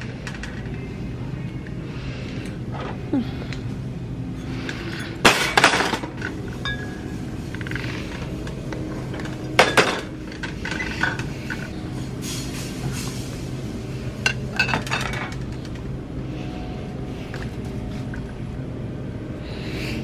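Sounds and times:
steady hum: 0.0s - 20.0s
glass bottles clinking: 4.9s - 7.7s, 9.1s - 11.7s, 14.2s - 15.6s.

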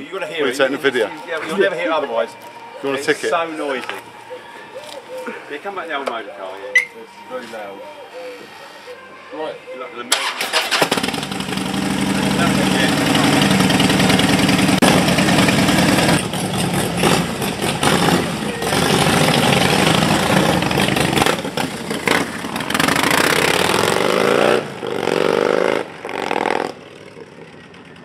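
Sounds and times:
motorcycles accelerating: 10.1s - 28.0s.

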